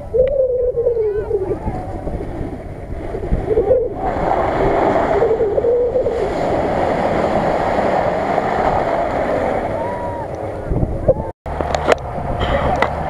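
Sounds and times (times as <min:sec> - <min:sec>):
water and mud sloshing: 0:01.5 - 0:10.6
car engine under load: 0:11.5 - 0:13.0.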